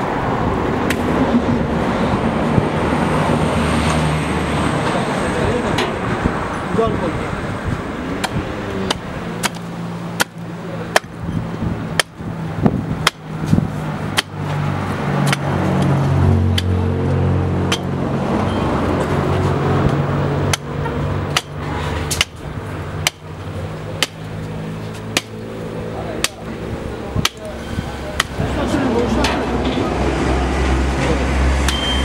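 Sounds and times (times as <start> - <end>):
axe chopping through bone: 8.2 - 11.2, 11.9 - 12.2, 13.0 - 13.3, 14.1 - 14.4, 15.2 - 15.5, 16.5 - 16.8, 17.7 - 17.9, 20.5 - 20.7, 21.3 - 22.4, 23.0 - 23.3, 24.0 - 24.2, 25.1 - 25.4, 26.2 - 26.5, 27.2 - 27.5, 28.2 - 28.4.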